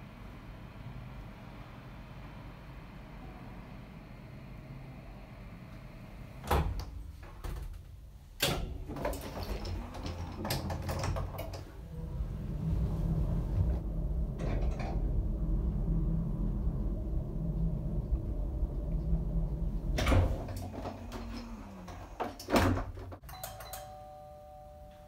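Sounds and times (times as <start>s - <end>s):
low rumble of elevator travelling: 0.0s - 23.2s
elevator doors closing: 5.7s - 24.3s.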